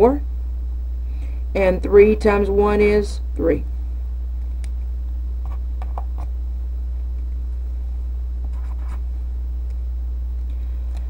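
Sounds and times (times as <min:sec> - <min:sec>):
steady low hum: 0:00.0 - 0:11.0
marker scratching on paper: 0:08.5 - 0:09.0.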